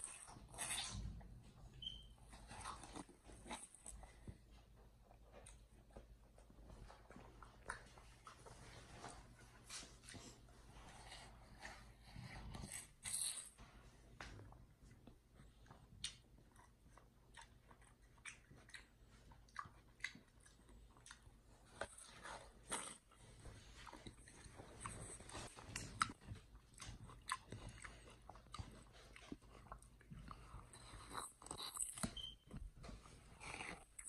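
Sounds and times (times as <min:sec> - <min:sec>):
chimpanzee chewing watermelon: 0:15.6 - 0:34.0.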